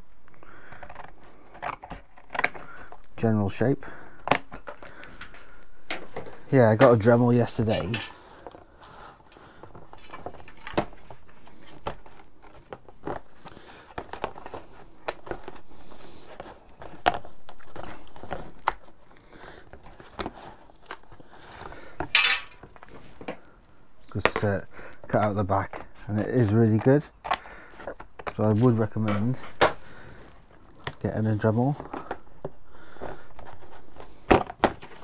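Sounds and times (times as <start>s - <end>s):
cardboard rustling and scraping: 0.3s - 3.6s, 4.2s - 35.0s
hard plastic case clattering: 4.2s - 8.7s, 9.3s - 18.8s, 19.6s - 23.4s, 30.8s - 35.0s.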